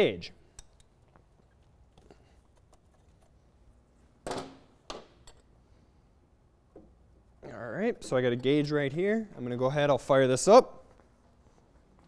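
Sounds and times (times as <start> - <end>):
tools clicking and clinking: 0.5 - 2.9, 4.3 - 5.6.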